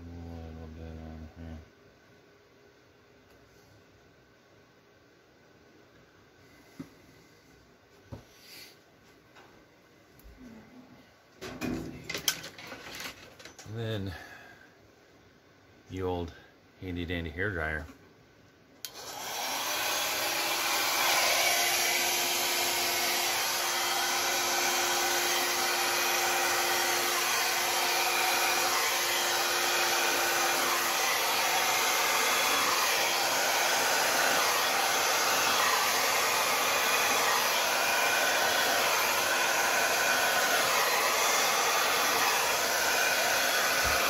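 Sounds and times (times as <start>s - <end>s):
hair dryer blowing: 18.8s - 44.0s.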